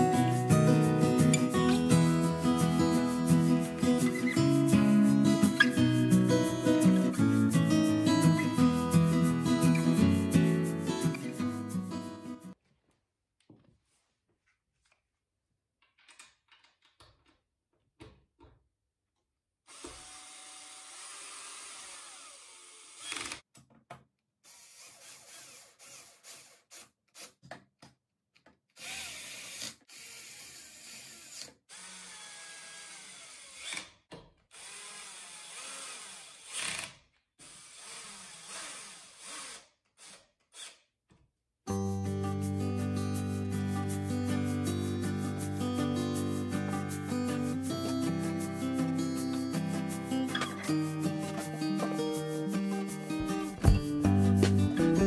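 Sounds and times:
cordless drill driving screws: 19.7 - 23.4, 24.5 - 27.3, 28.8 - 40.8.

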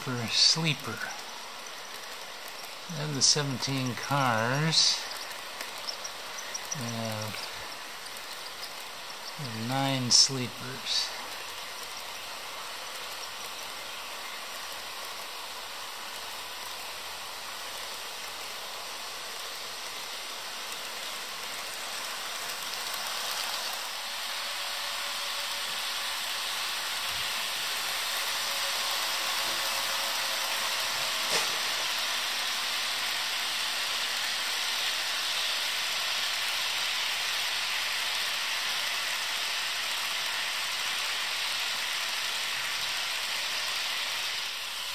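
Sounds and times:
locomotive motors whirring: 0.0 - 15.3
model train wheels rolling on rails: 0.0 - 44.9.

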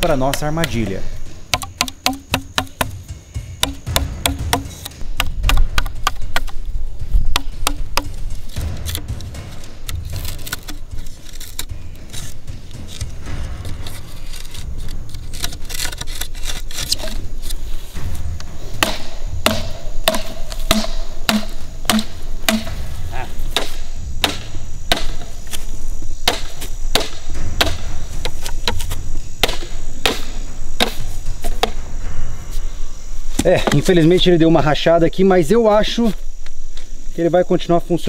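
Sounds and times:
knife chopping bamboo: 1.5 - 3.0, 3.6 - 6.6, 18.8 - 25.6, 26.2 - 31.8.

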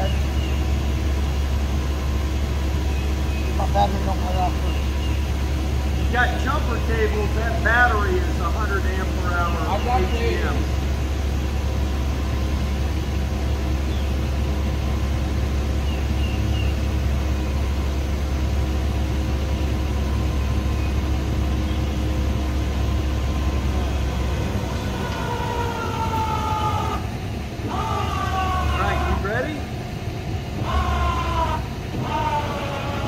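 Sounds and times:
faint bird chirps: 0.0 - 1.6, 2.8 - 5.4
motor hum and whine: 0.0 - 33.0.

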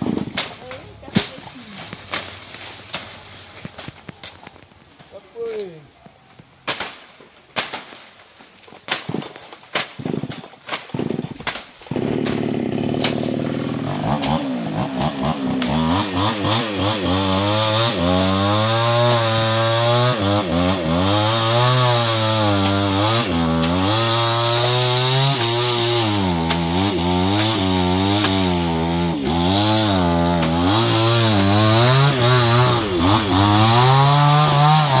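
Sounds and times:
chainsaw running and cutting: 9.8 - 35.0.

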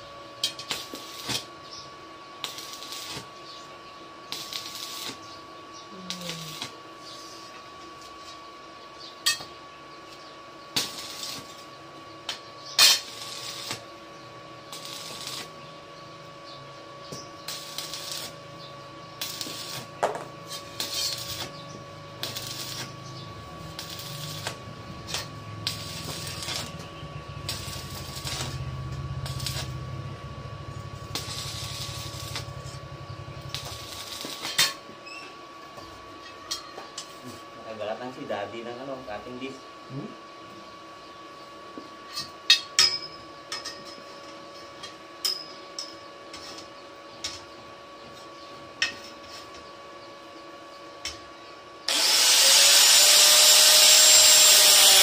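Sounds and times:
welding arc crackling: 0.0 - 1.5, 2.4 - 3.3, 4.3 - 5.2, 6.0 - 6.8, 10.7 - 11.7, 12.3 - 15.7, 17.1 - 34.8, 51.9 - 55.0
low drone: 20.5 - 34.4.

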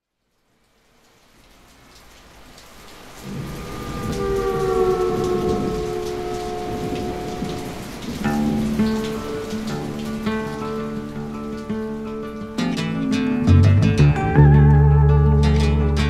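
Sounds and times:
rain: 0.0 - 16.0
rumbling thunder: 3.2 - 10.7
long held musical notes: 3.3 - 16.0.

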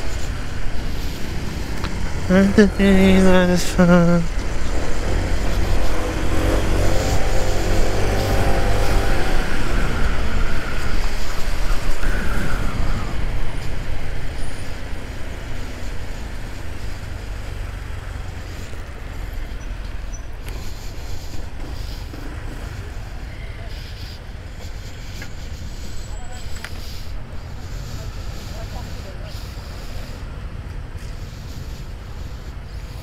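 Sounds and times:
road noise low rumble: 0.0 - 33.0
vehicle engine rising in pitch: 2.0 - 11.1.

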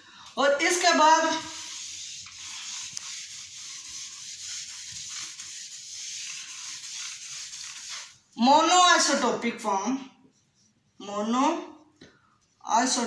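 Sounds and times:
eraser rubbing on whiteboard: 0.6 - 8.4.

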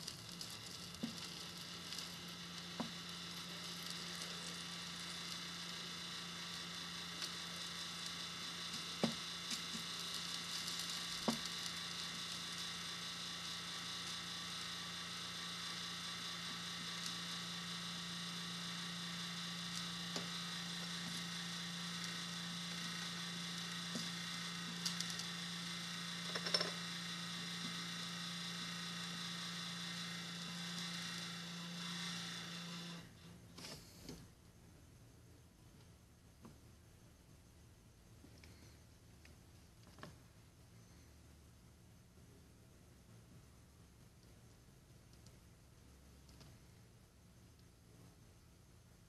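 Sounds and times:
solder sizzling: 0.0 - 34.6
electrical hum: 0.0 - 49.0.

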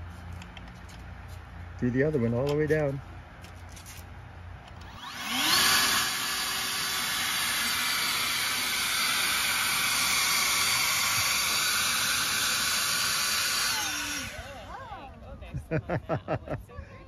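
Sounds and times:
electric blower whining: 4.7 - 15.2.

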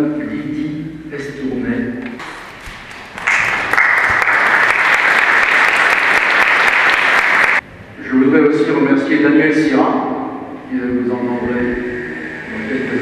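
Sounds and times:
audience applauding: 2.2 - 7.6.

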